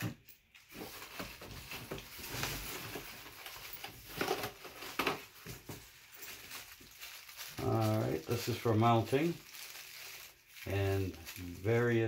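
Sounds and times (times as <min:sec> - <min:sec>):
plastic bags and cardboard rustling: 0:00.0 - 0:12.0.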